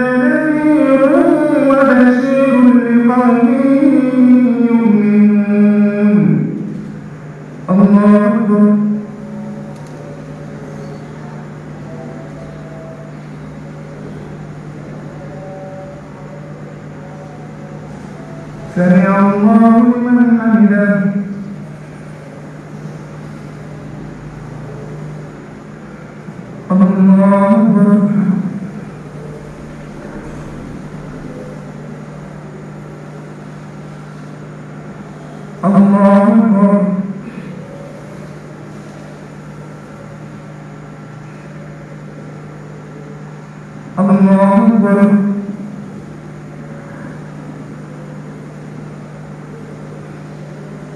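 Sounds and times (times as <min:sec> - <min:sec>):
amplified man chanting: 0:00.0 - 0:09.8, 0:15.1 - 0:21.7, 0:26.2 - 0:32.8, 0:35.3 - 0:37.7, 0:43.9 - 0:46.0
low hum: 0:00.0 - 0:50.9.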